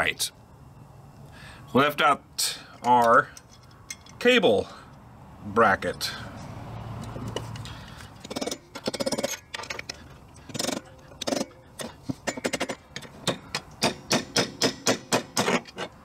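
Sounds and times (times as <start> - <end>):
metal hardware and tools clinking: 2.7 - 4.4, 7.0 - 16.0.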